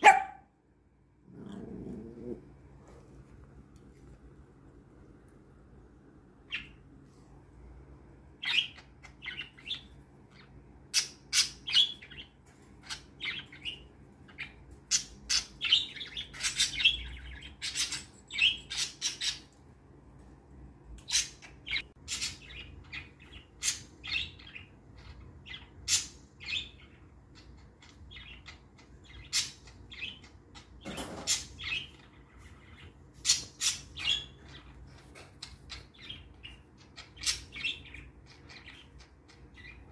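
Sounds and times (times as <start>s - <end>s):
budgerigars chirping: 35.7s - 39.9s.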